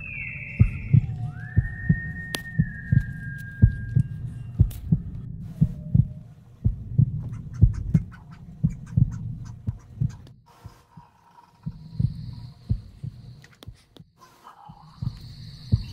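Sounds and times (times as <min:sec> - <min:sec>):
heartbeat: 0:00.0 - 0:15.9
steady low hum: 0:00.0 - 0:15.9.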